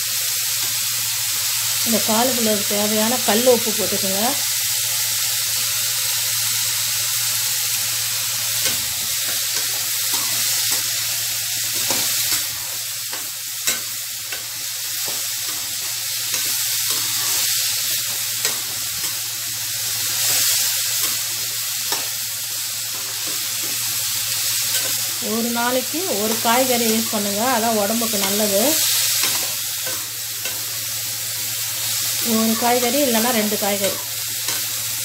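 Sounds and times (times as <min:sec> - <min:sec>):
vegetables sizzling in pan: 0:00.0 - 0:35.0
metal spatula scraping: 0:11.7 - 0:19.2.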